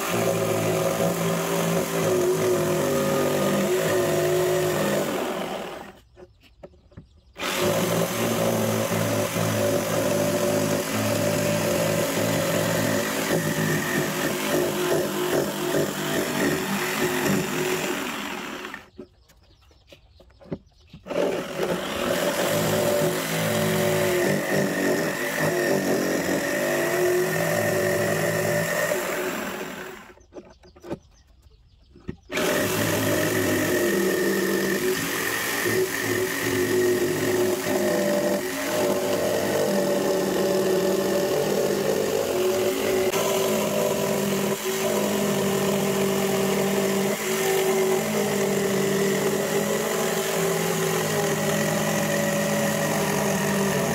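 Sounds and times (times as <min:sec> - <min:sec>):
jigsaw cutting wood: 0:00.0 - 0:06.0, 0:07.4 - 0:19.0, 0:21.0 - 0:30.2, 0:32.3 - 0:53.9.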